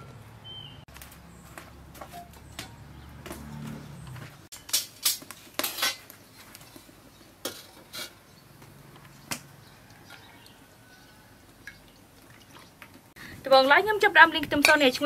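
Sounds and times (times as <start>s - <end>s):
metal cookware clanking: 4.7s - 6.1s.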